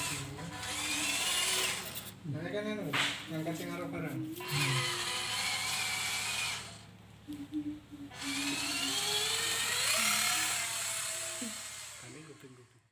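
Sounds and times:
small electric motor whining: 0.0s - 2.1s, 4.3s - 6.9s, 8.1s - 12.9s.

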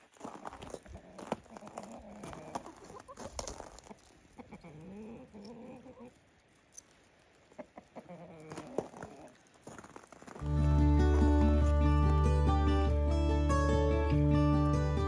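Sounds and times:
chickens clucking softly: 0.9s - 6.3s, 7.4s - 9.4s.

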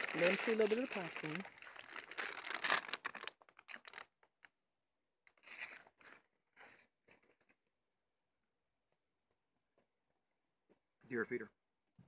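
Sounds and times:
plastic bag crinkling: 0.0s - 4.2s, 5.4s - 6.2s.

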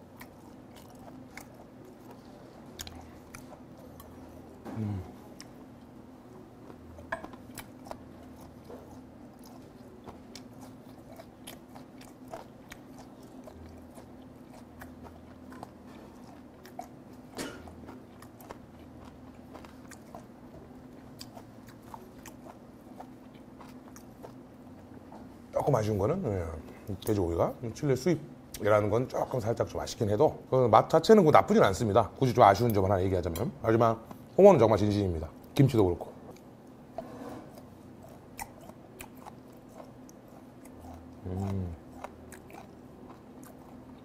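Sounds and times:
person chewing wet crunchy food: 0.0s - 25.9s, 36.2s - 44.0s
person humming: 4.6s - 5.3s, 41.2s - 41.8s.

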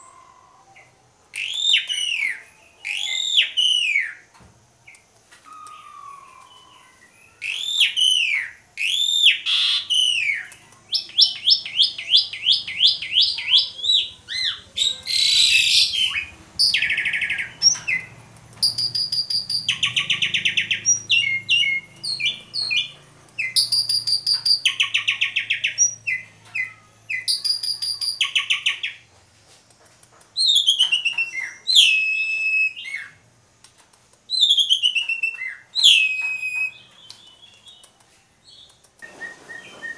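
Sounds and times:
starling singing: 0.0s - 4.2s, 5.5s - 29.0s, 30.4s - 33.2s, 34.3s - 39.9s.

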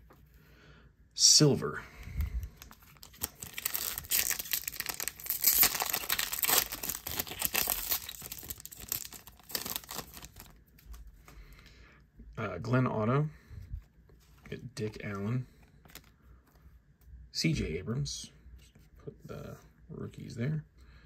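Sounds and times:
foil wrapper crackling: 2.5s - 10.6s.

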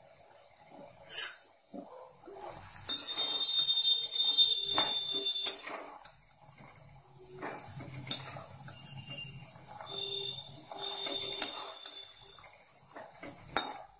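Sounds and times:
oil sizzling: 0.0s - 13.9s
metal spoon clinking on pan: 2.8s - 5.9s, 7.4s - 12.4s, 13.5s - 13.9s
metal scraping squeal: 2.9s - 5.8s, 7.4s - 12.4s.

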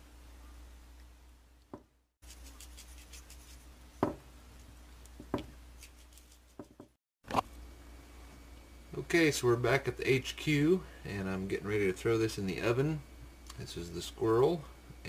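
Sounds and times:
faint steady hum: 0.0s - 15.0s
light knocks and taps: 4.0s - 4.2s.

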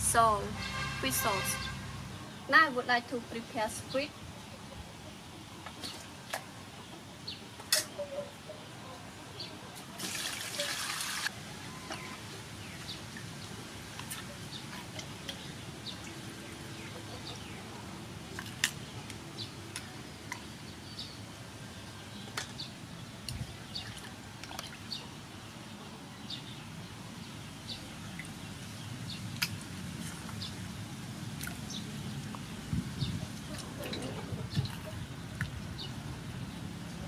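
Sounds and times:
small water splashes: 10.0s - 11.3s, 23.2s - 25.0s
rush of water: 10.0s - 11.4s
water sloshing in a metal basin: 23.7s - 25.0s, 33.3s - 35.6s.

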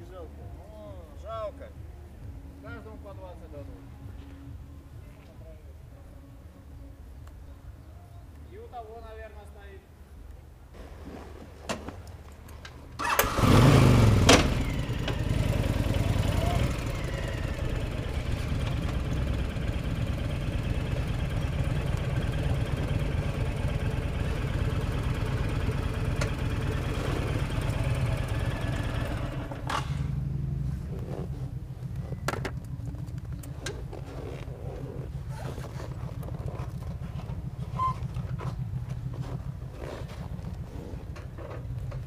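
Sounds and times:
motorcycle engine running slowly: 13.0s - 42.0s.

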